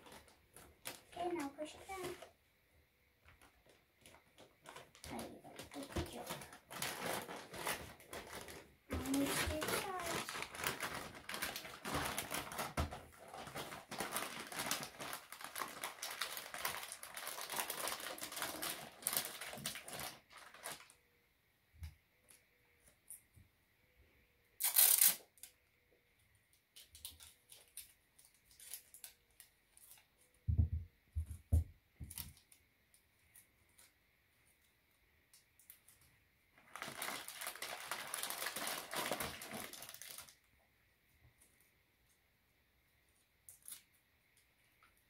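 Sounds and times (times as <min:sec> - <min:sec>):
wrapping paper crinkling: 0:00.0 - 0:02.3, 0:03.4 - 0:21.0, 0:24.6 - 0:25.6, 0:26.8 - 0:30.3, 0:35.6 - 0:40.5
loud ripping sound: 0:05.1 - 0:20.8, 0:24.6 - 0:25.5.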